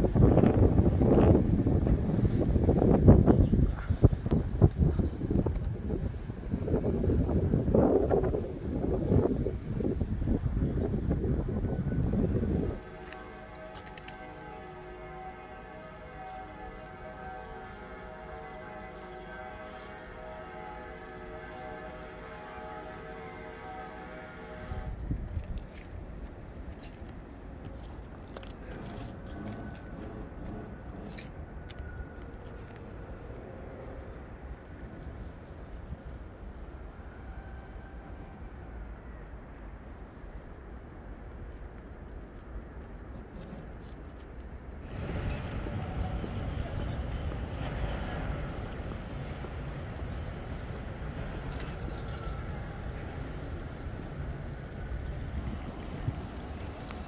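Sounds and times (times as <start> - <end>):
urban traffic rumble and hiss: 0.0 - 57.0
distant traffic rumble: 41.1 - 57.0.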